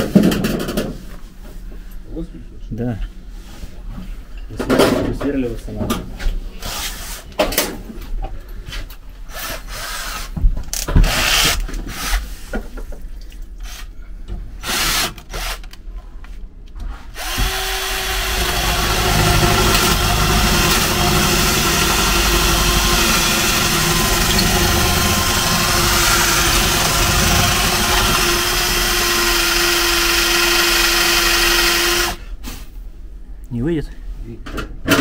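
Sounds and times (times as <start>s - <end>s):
power drill running: 11.0s - 11.6s, 17.2s - 32.2s.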